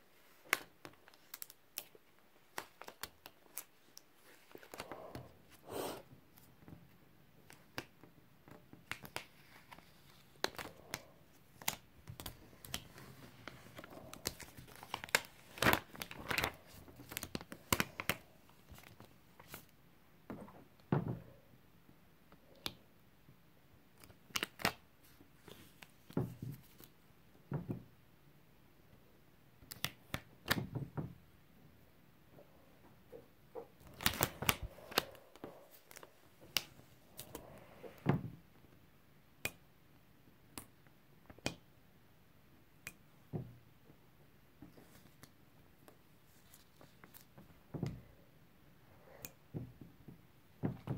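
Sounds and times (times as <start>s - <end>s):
vinyl peeling with plastic crinkles: 0.2s - 5.2s, 7.4s - 19.7s, 24.0s - 27.0s, 33.5s - 37.9s, 44.7s - 47.6s.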